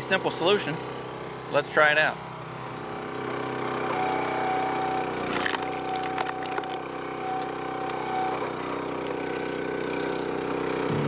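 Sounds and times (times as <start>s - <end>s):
gas engine running: 0.0s - 11.0s
wood cracking and splintering: 5.1s - 10.0s.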